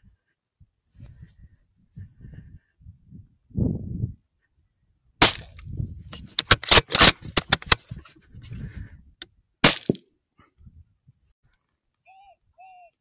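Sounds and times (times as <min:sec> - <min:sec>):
rifle shots: 0:06.4 - 0:07.2.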